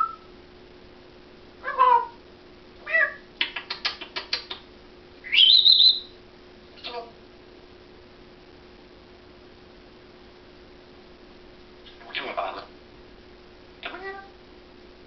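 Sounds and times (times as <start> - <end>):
parrot calls: 0.0 - 0.2, 1.6 - 2.2, 2.8 - 4.6, 5.2 - 6.2
parrot rising whistle: 0.0 - 0.3, 5.2 - 6.2
parrot clicks: 3.4 - 4.6.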